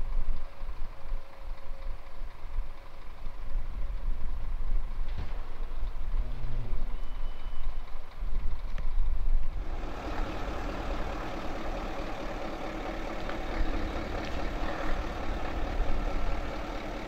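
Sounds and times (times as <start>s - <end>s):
truck engine rumble: 0.0s - 17.0s.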